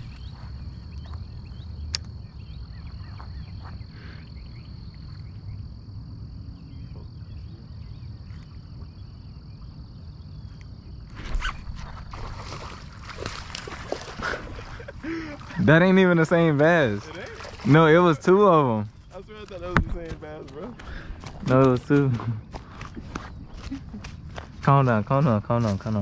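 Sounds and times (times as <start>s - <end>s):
high-pitched insect trill: 0.0s - 20.4s
low outdoor rumble: 0.0s - 26.0s.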